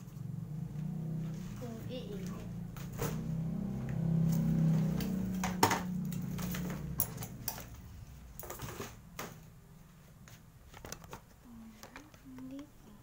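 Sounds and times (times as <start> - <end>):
low hum: 0.0 - 8.6.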